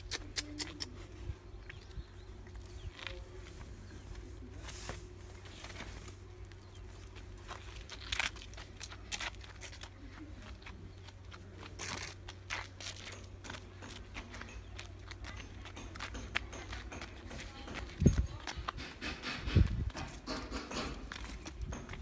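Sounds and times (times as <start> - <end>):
footsteps on gritty leafy path: 2.7 - 18.8.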